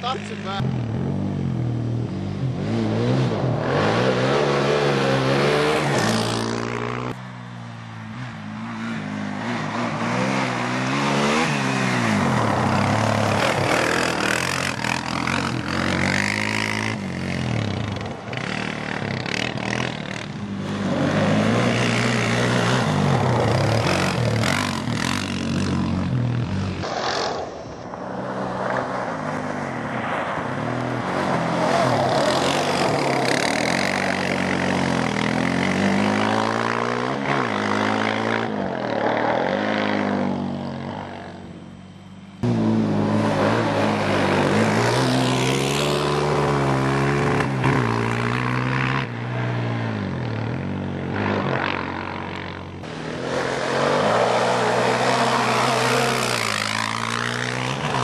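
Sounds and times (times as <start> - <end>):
quad engine revving: 8.6 - 27.4, 31.2 - 41.2, 42.4 - 49.1, 49.8 - 58.0.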